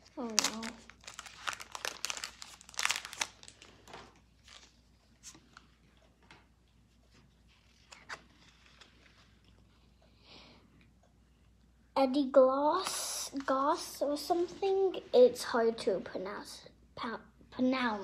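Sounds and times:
foil wrapper tearing and crinkling: 0.2s - 4.7s.

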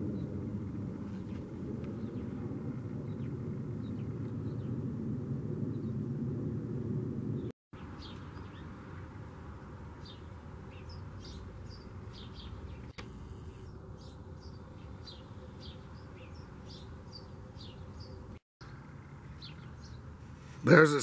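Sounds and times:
low outdoor background rumble: 0.0s - 20.4s
small birds chirping: 7.4s - 21.0s.

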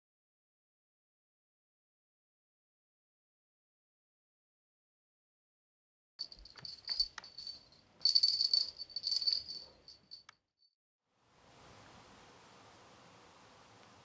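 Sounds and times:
cat toy bell jingling: 6.2s - 10.2s
faint room hiss: 11.1s - 14.0s.

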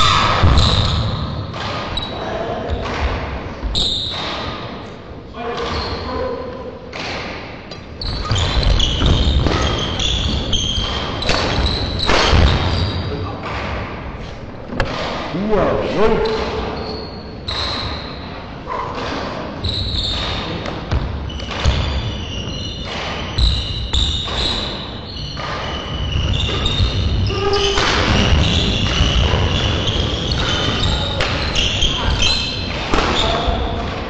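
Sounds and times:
shoes squeaking on court floor: 0.6s - 2.8s, 5.5s - 6.3s, 7.8s - 13.1s, 16.2s - 18.8s, 19.6s - 33.8s.

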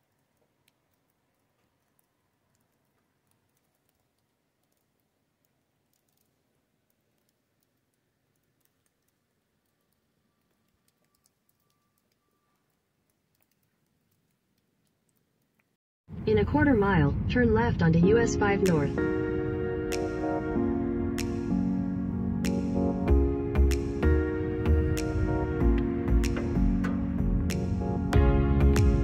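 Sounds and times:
faint steady tone: 3.7s - 15.2s.

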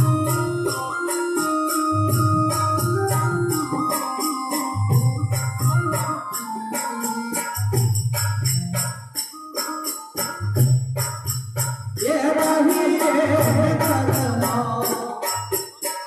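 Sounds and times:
jingling metal percussion: 0.0s - 16.0s
person singing: 12.0s - 15.5s.

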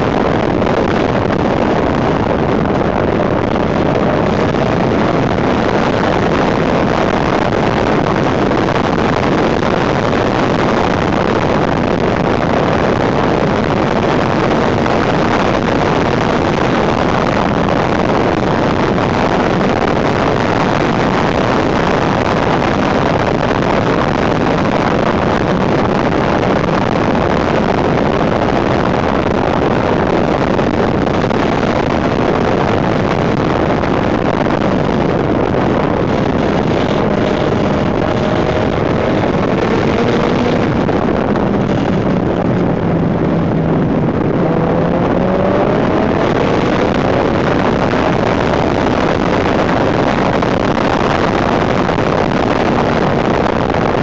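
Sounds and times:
wind rushing over microphone: 0.0s - 54.0s
motorcycle engine cruising: 34.4s - 49.9s.

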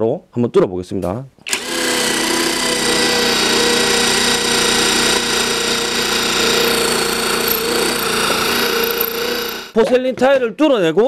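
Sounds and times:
drill bit grinding tile: 1.5s - 9.8s
impact driver hammering rattle: 1.5s - 9.8s.

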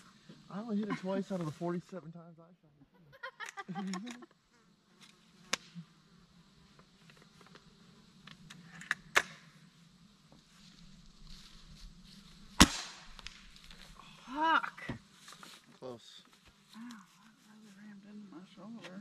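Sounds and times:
fly buzzing: 3.2s - 15.7s
gunshot: 12.6s - 13.4s.

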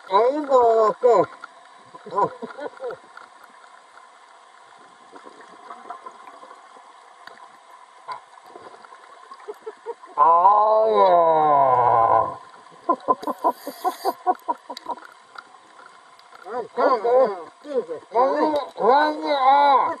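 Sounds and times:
soft underwater crackle: 0.0s - 20.0s
small underwater clicks: 0.3s - 10.1s, 12.4s - 16.6s, 18.4s - 18.8s
short gurgling blips: 13.0s - 15.0s.

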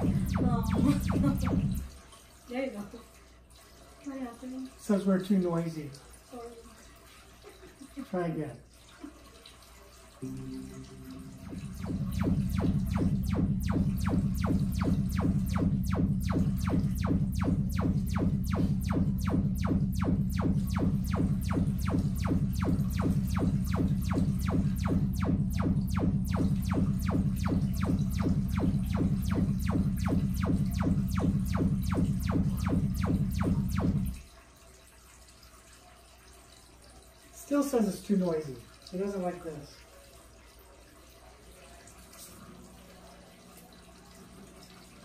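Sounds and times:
stepped test tones: 0.0s - 1.9s, 10.2s - 34.2s
low hum with fast ticking: 0.0s - 6.7s, 10.2s - 45.0s.

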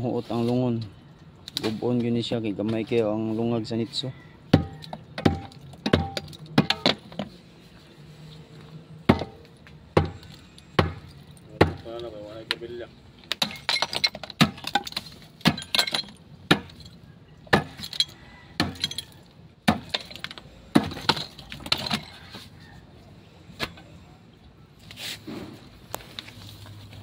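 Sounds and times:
metal bar striking concrete: 4.6s - 7.1s
falling rubble: 4.6s - 7.2s, 13.3s - 22.5s
broken tile clinking: 13.3s - 17.0s, 17.6s - 19.2s.

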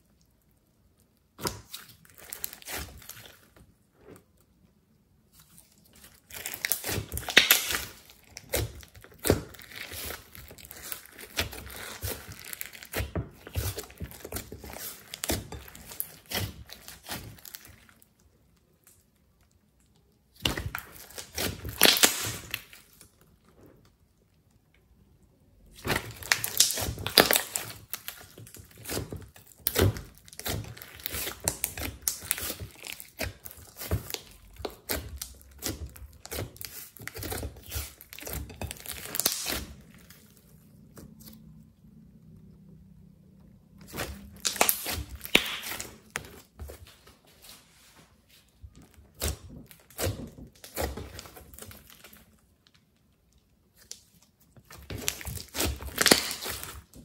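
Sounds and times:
slime sticky crackles and pops: 5.8s - 18.1s, 19.8s - 23.1s, 25.8s - 40.2s, 43.9s - 46.4s, 49.2s - 57.0s.

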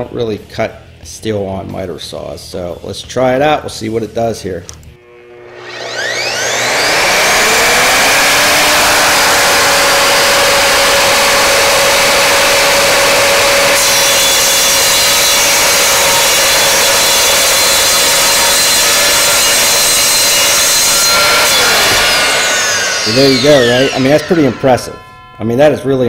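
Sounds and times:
miter saw cutting steel: 5.0s - 26.0s.

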